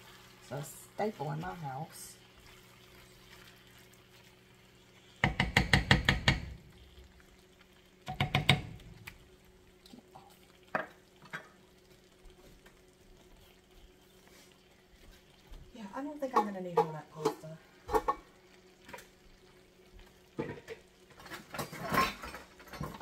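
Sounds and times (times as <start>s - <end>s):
wooden spoon clacking on pan: 5.2s - 6.6s, 8.0s - 8.8s.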